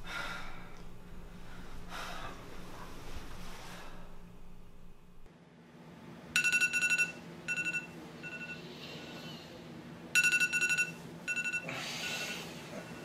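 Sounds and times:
bedding rustling: 1.3s - 4.3s
phone alarm beeping: 6.4s - 8.6s, 10.2s - 13.0s.

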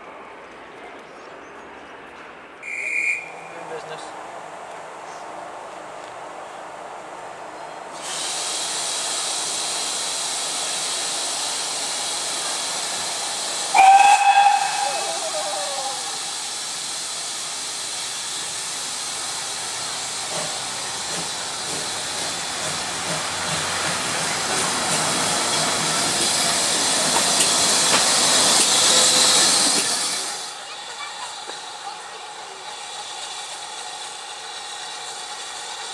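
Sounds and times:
steam locomotive hissing: 7.9s - 35.9s
train whistle blast: 13.7s - 16.2s.

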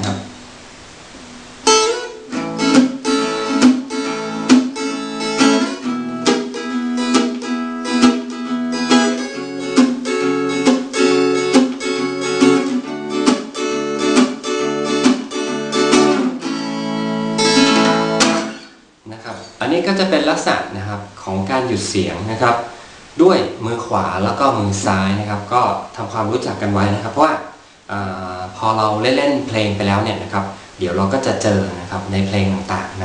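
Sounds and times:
acoustic guitar strumming muted chords: 1.1s - 19.6s.

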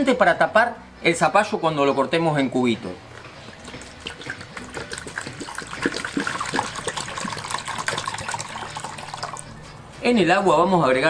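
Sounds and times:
water pouring into basin: 3.5s - 9.6s.

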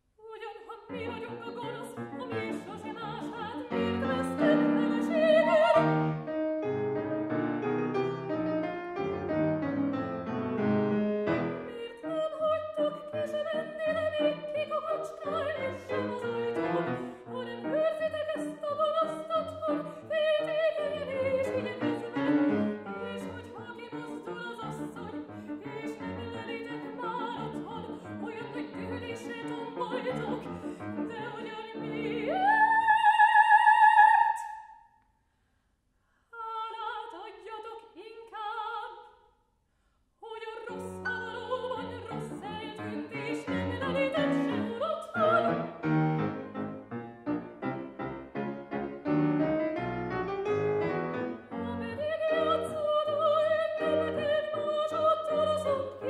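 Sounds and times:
soprano singing opera: 0.2s - 6.2s, 11.6s - 34.7s, 36.3s - 39.1s, 40.2s - 45.9s, 51.4s - 56.0s
grand piano: 0.8s - 34.5s, 40.4s - 56.0s.

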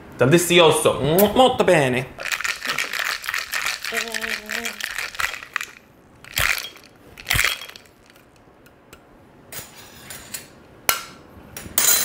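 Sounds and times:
ice shifting: 2.2s - 8.2s.

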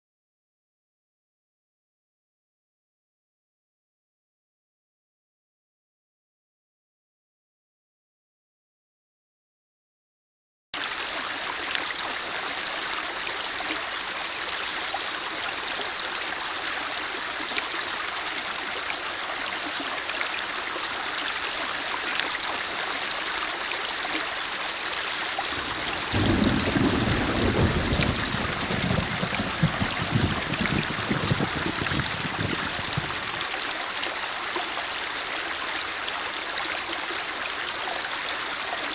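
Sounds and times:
stream water gurgling over stones: 10.8s - 38.9s
low water gurgle: 25.3s - 33.6s
high chirps: 28.8s - 30.2s.

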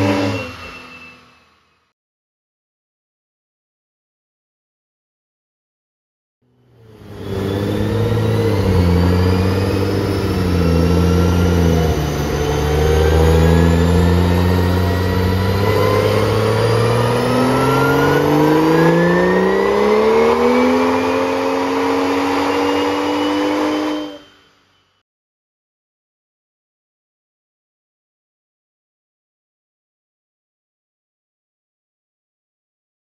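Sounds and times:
car engine revving under load: 0.0s - 0.8s, 6.5s - 24.4s
thin rising whine: 0.0s - 2.0s, 6.5s - 25.0s.

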